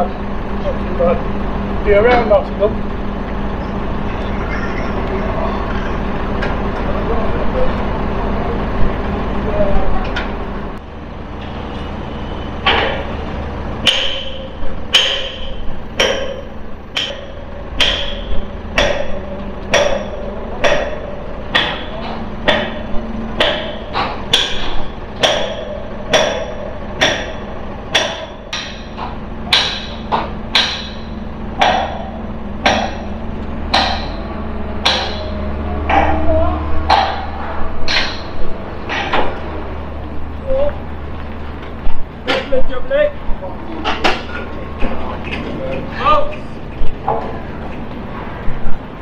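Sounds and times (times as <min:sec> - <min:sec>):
low hum: 0:00.0 - 0:49.0
hammer blows ringing: 0:13.8 - 0:39.3.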